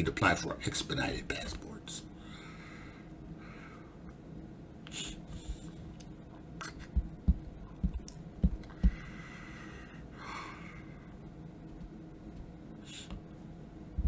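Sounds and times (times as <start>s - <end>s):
soft breath: 2.2s - 4.1s, 8.7s - 11.3s
low dull thumps: 6.9s - 9.1s.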